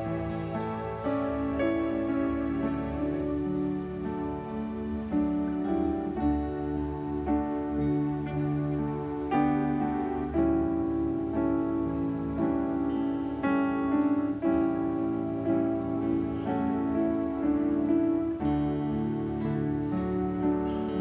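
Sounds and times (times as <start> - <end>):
soft piano-like chords: 0.0 - 21.0.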